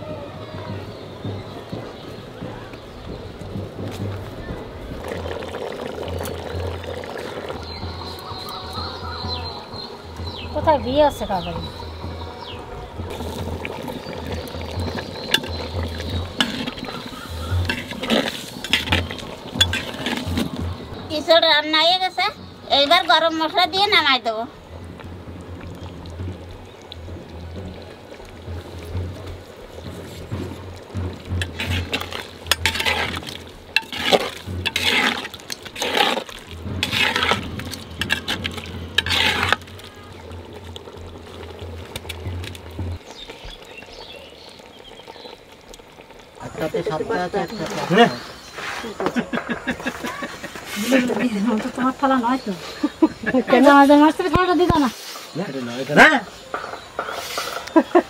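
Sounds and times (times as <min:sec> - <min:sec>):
metal spatula scraping pot: 0:13.1 - 0:20.6, 0:29.8 - 0:40.6
utensil stirring thick curry: 0:13.1 - 0:20.9, 0:26.7 - 0:46.1.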